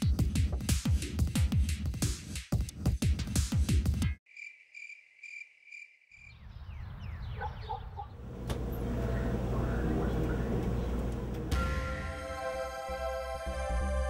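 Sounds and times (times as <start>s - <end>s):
cricket chirping: 4.3s - 6.8s.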